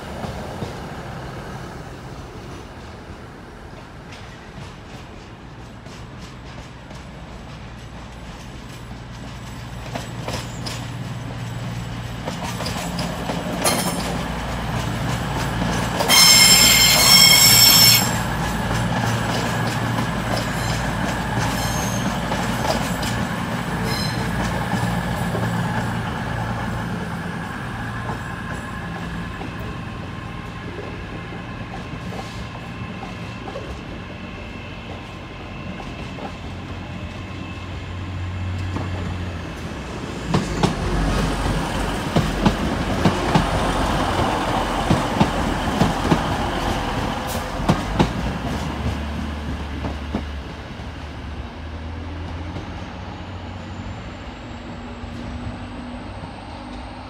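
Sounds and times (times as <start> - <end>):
diesel train engine humming: 0.0 - 57.0
shrill high-pitched note: 16.1 - 18.3.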